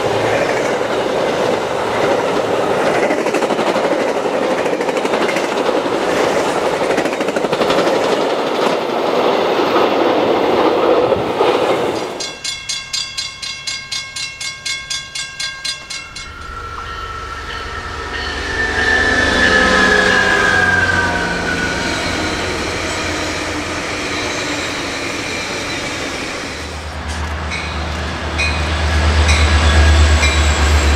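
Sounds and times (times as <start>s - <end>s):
diesel train rumbling: 0.0s - 12.7s, 15.2s - 30.9s
train cars clattering past: 0.0s - 30.9s
railroad crossing bell ringing: 12.2s - 25.8s, 27.5s - 30.9s
train horn: 16.2s - 24.4s.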